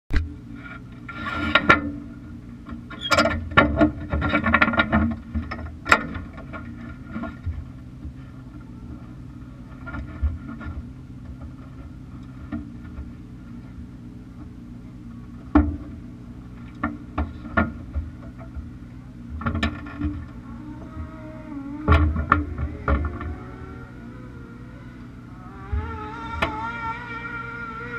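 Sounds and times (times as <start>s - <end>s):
buggy engine idling: 0.1s - 27.9s
chassis knocks and rattles: 15.4s - 21.2s, 21.8s - 23.9s.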